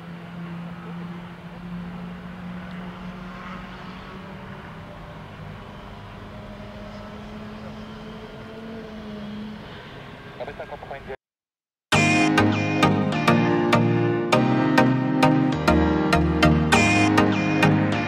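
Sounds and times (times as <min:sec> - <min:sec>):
jet engine rumble at takeoff: 0:00.0 - 0:11.2.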